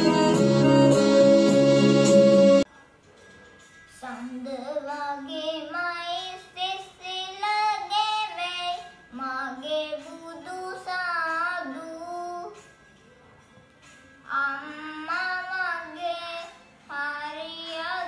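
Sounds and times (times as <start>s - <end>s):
boy singing devotional song: 3.9s - 12.8s, 14.1s - 18.0s.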